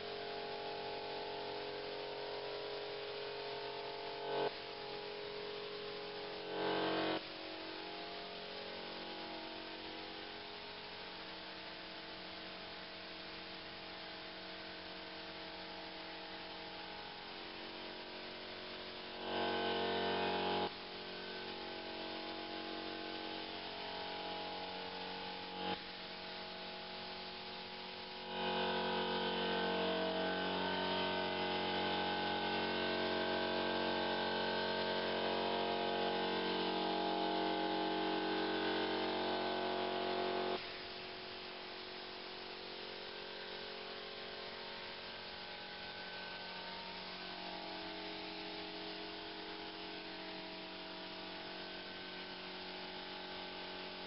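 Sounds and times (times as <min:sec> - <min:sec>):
air compressor humming: 0:26.9 - 0:43.0.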